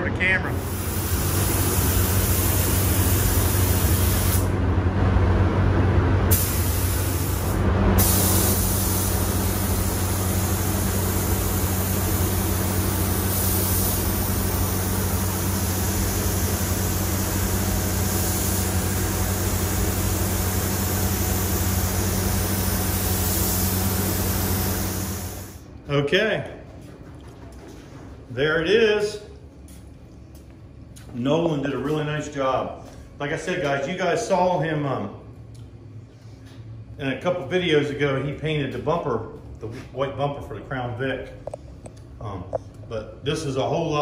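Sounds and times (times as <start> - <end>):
steady low hum: 0.0 - 44.0
paint spray gun hissing: 0.6 - 4.5, 6.3 - 25.6.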